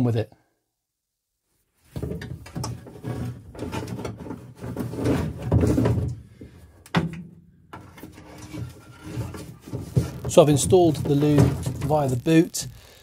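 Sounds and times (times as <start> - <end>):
wiring rubbing and scraping: 2.5 - 6.0, 7.8 - 13.0.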